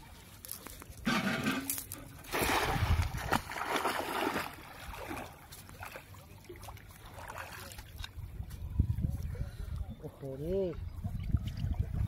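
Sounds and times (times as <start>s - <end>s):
wading splashing and sloshing: 0.0s - 8.8s
net splashing into water: 2.2s - 8.0s.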